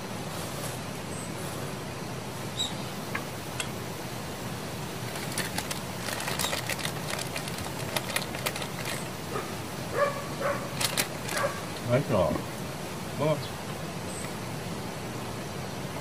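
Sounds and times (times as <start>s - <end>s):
low background hiss: 0.0s - 16.0s
plastic bag crinkling: 5.0s - 9.1s, 10.7s - 11.8s.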